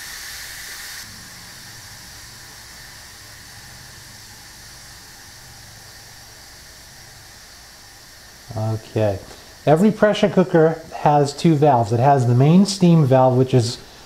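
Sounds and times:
pressure cooker steam valve hissing: 0.0 - 14.0.

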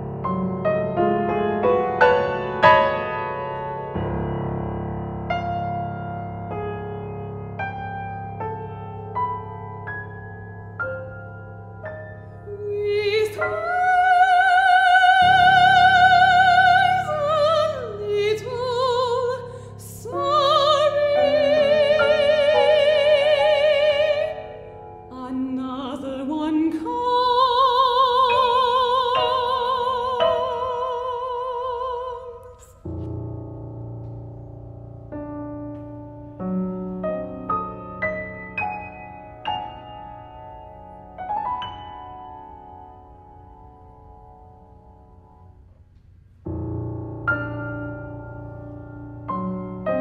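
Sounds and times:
piano accompaniment: 0.0 - 50.0
soprano singing with vibrato: 12.4 - 32.8.

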